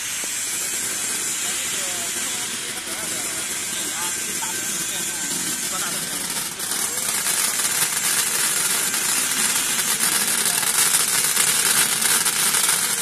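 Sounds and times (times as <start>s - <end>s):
air jets hissing and crackling: 0.0s - 13.0s.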